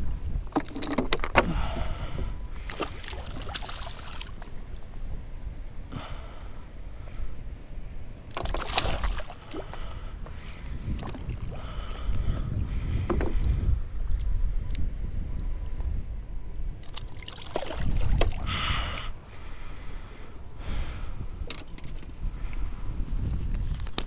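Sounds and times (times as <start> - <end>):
wind rumble on microphone: 0.0 - 24.0
fish splashing at water surface: 2.7 - 4.5, 8.4 - 9.9, 16.9 - 18.4.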